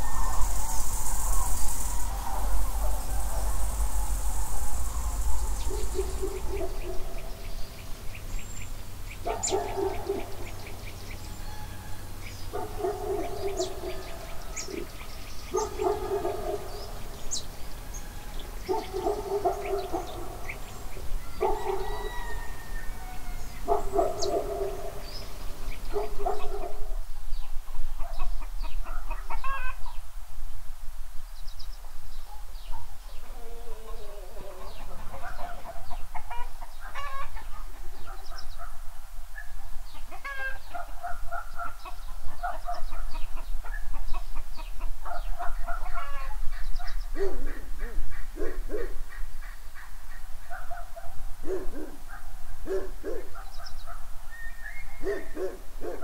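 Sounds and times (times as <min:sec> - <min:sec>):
small birds chirping: 0:00.0 - 0:30.1, 0:31.4 - 0:38.7, 0:51.5 - 0:56.0
hens clucking: 0:33.2 - 0:37.4.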